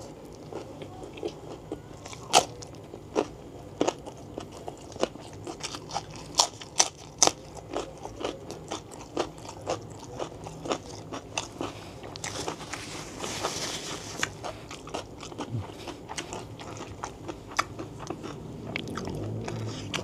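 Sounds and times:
wet chewing: 0.3 - 20.0
crisp crunches of biting chili: 3.2 - 20.0.

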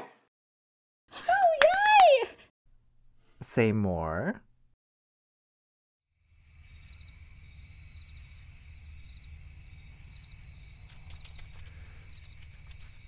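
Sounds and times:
crickets chirring: 6.1 - 13.0.

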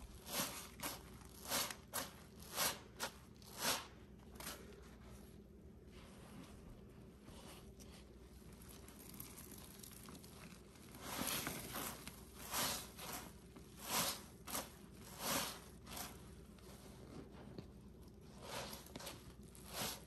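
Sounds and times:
wet crunching sponge squeezes: 7.2 - 20.0.

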